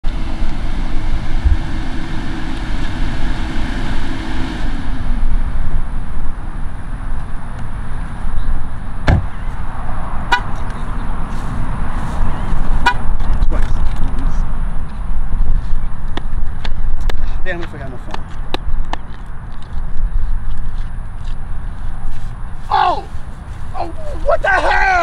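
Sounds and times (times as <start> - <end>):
car door shutting: 9.0 - 9.4
car horn chirp: 10.3 - 10.6, 12.8 - 13.1.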